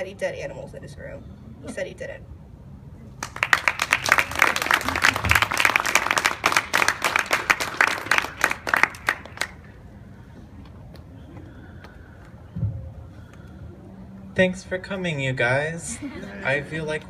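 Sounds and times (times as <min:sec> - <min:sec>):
audience applauding: 0:03.2 - 0:09.6.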